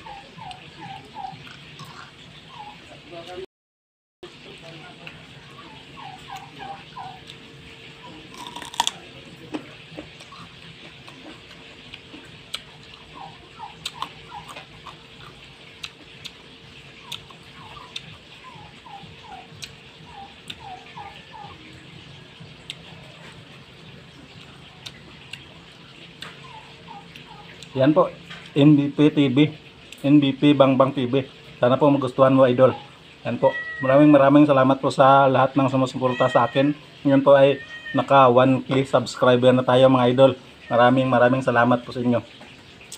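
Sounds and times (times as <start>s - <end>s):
carrot crunching: 8.3s - 13.0s.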